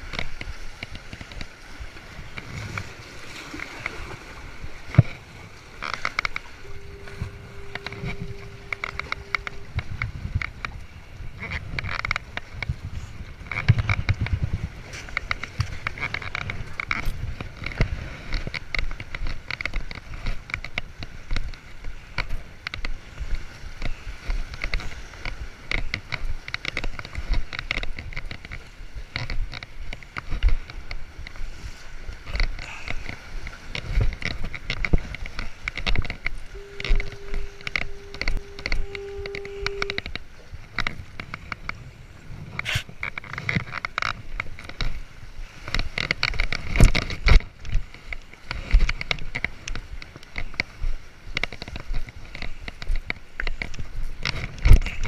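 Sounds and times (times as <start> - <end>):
waves sloshing against stone: 0.0 - 55.0
wind on microphone: 0.0 - 55.0
steady pitched tone: 6.3 - 11.1, 36.5 - 40.4.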